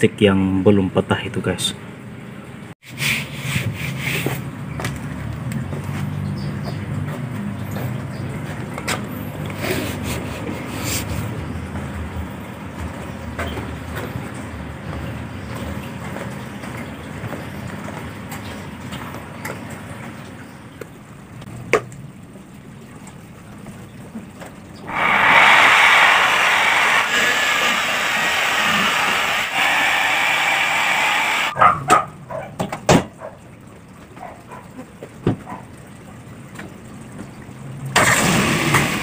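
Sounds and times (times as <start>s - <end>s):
electric polisher running: 24.9s - 31.5s.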